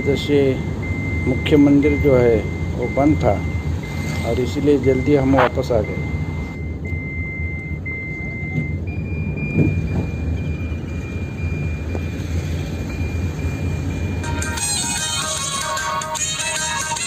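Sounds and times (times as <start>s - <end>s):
car engine and tyre rumble: 0.0s - 17.0s
music: 14.2s - 17.0s.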